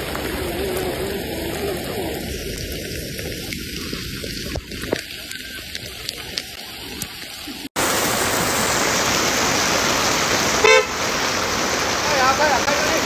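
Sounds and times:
heavy rain pouring: 0.0s - 13.0s
vehicle horn toot: 10.6s - 11.0s.

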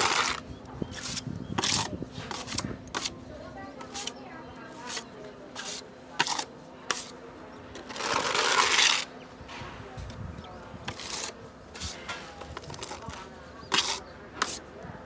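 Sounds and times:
steel trowel scraping wall: 0.0s - 3.2s, 3.8s - 7.2s, 7.8s - 9.1s, 10.9s - 14.6s.

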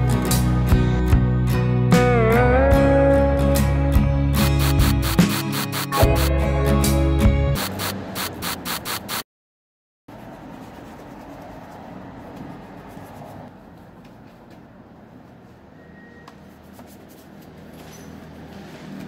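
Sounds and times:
spray bottle misting: 4.4s - 6.3s, 7.6s - 9.2s.

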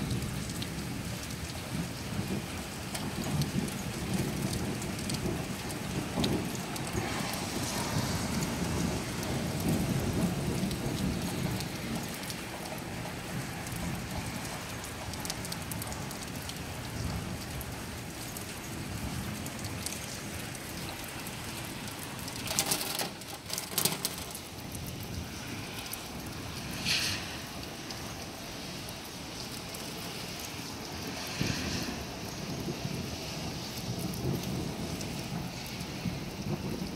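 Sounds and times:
distant thunder rumbling: 0.0s - 15.1s, 30.9s - 36.9s
steady rain: 0.0s - 36.9s.

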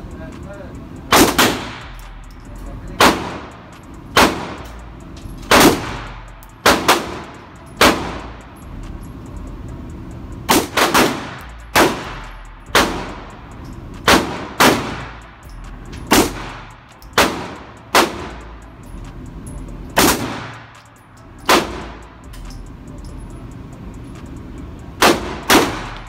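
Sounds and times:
handgun shots with echo: 1.1s - 2.1s, 3.0s - 4.8s, 5.4s - 8.3s, 10.5s - 13.3s, 14.0s - 15.1s, 16.0s - 18.3s, 20.0s - 20.8s, 21.4s - 22.6s, 25.0s - 26.0s.

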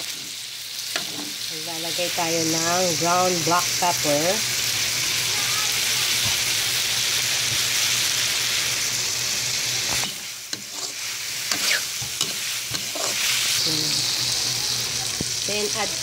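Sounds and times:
metal ladle scraping wok: 0.0s - 1.4s, 9.9s - 14.3s
meat sizzling in wok: 0.0s - 16.0s.

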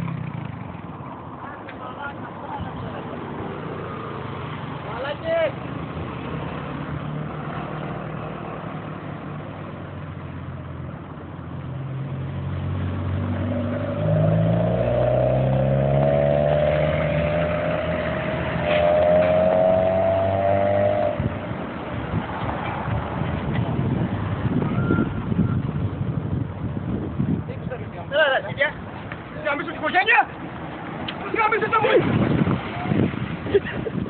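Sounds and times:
road noise hiss: 0.0s - 34.0s
vehicle engine revving: 12.3s - 22.3s.

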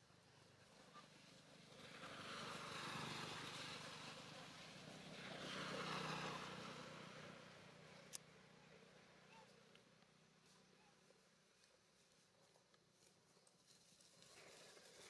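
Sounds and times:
passing vehicle whoosh: 1.7s - 7.9s.

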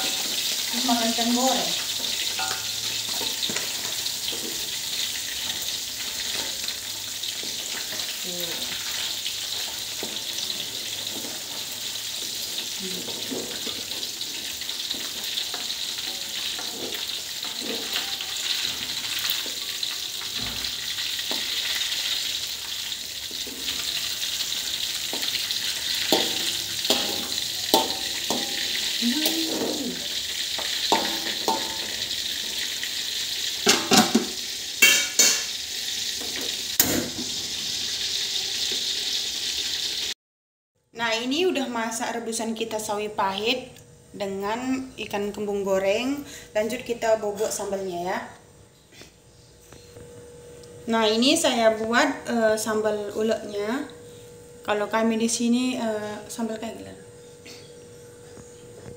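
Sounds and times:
metal spatula scraping wok: 0.0s - 37.3s
fish sizzling in hot oil: 0.0s - 40.2s.

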